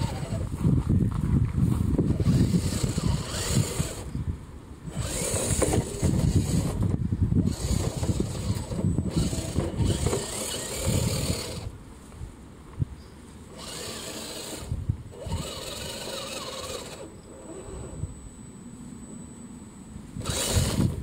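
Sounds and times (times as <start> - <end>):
electric motor and gears whirring: 0.0 - 11.8, 13.3 - 21.0
tyres crunching over gravel: 7.5 - 12.2.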